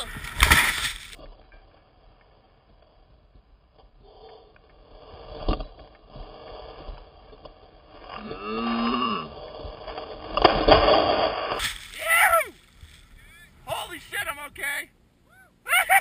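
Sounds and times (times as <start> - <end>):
person whooping: 12.0 - 12.6, 15.3 - 16.0.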